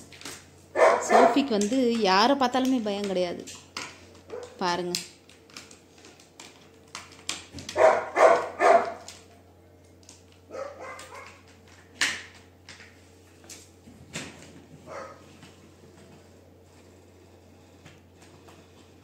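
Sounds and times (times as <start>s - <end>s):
dog barking: 0.8s - 1.4s, 4.3s - 4.6s, 7.7s - 9.1s, 10.5s - 11.4s, 14.9s - 15.2s.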